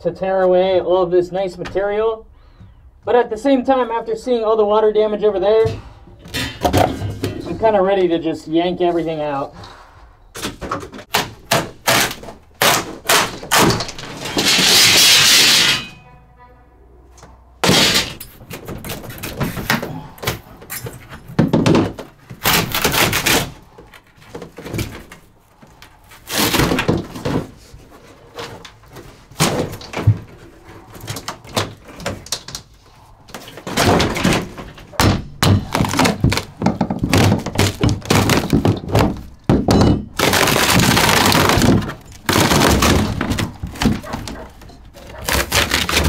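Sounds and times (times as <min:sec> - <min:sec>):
knocks thuds and scraping: 0:05.4 - 0:08.2, 0:10.3 - 0:16.0, 0:17.6 - 0:46.0
long tearing rip: 0:22.4 - 0:23.6, 0:45.0 - 0:46.0.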